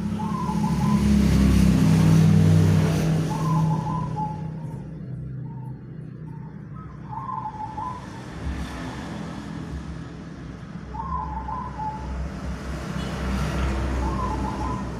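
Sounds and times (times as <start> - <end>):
dove cooing: 3.3 - 4.8, 5.4 - 8.1, 10.9 - 12.1, 14.0 - 14.9.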